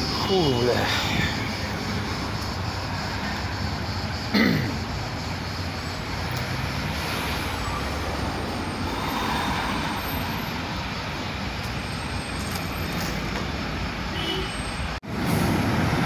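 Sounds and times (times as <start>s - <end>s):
vehicle passing: 0.0s - 11.6s
street traffic noise: 0.0s - 16.0s.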